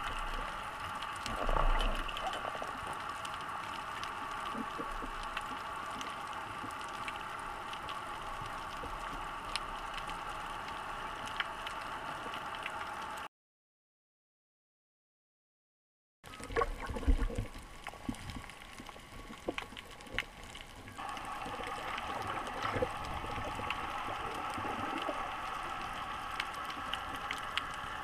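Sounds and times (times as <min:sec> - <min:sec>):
underwater hiss: 0:21.0 - 0:28.0.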